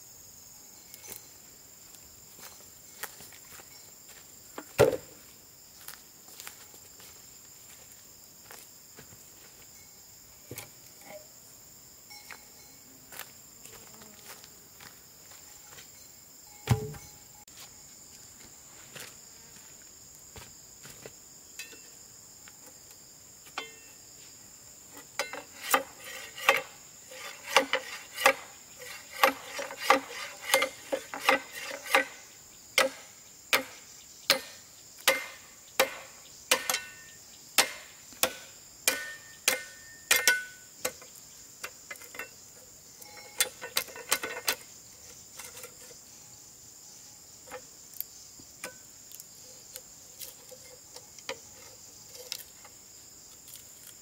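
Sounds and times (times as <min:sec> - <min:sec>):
insects chirring: 0:00.0 - 0:54.0
tool striking wood: 0:16.6 - 0:17.1, 0:32.8 - 0:41.0.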